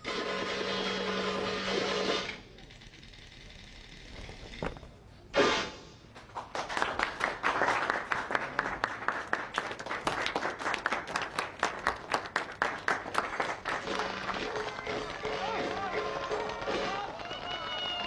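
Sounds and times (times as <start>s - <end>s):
audience clapping: 6.1s - 18.0s.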